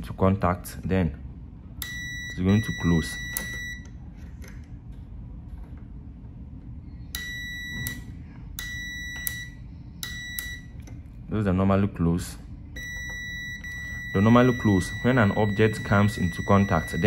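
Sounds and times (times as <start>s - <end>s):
multimeter continuity buzzer beeping: 1.8s - 3.9s, 7.2s - 10.7s, 12.8s - 17.0s.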